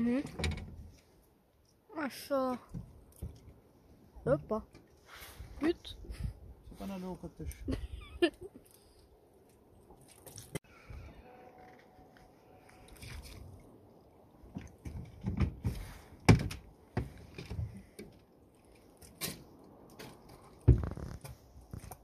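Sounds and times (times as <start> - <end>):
knocks and thumps on boat: 14.5 - 17.8.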